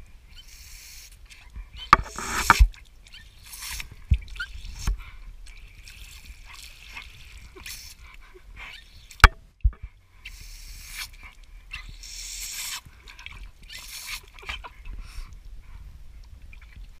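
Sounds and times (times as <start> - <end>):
sharp knock and thud: 2.0 - 2.7
water splashing: 2.0 - 15.5
dog snapping and lapping water: 2.3 - 8.3.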